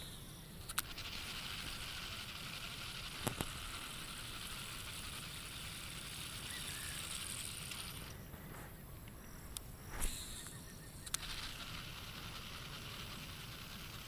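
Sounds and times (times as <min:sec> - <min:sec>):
quick reel clicks: 0:00.0 - 0:08.2, 0:09.5 - 0:14.0
fishing reel whirring: 0:00.0 - 0:08.3, 0:09.8 - 0:14.0.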